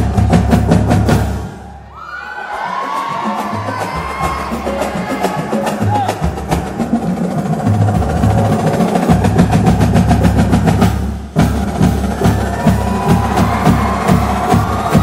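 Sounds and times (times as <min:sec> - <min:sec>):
dance music with heavy beat: 0:12.2 - 0:15.0.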